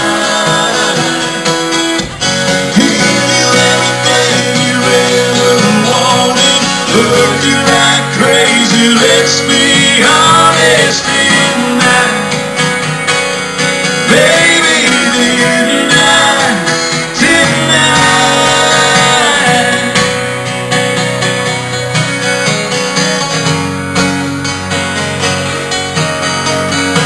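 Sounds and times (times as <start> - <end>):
person singing: 0.0 - 12.5, 14.1 - 20.3
acoustic guitars strumming: 0.0 - 27.0.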